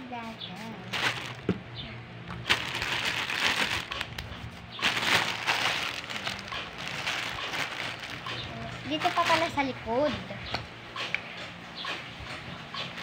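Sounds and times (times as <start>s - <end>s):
plastic packaging crinkling: 0.9s - 1.6s, 2.3s - 9.6s.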